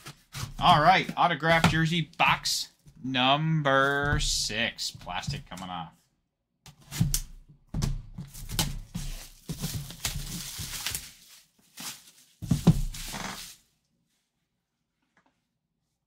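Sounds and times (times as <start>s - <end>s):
plastic wrap crinkling and tearing: 8.4s - 13.7s.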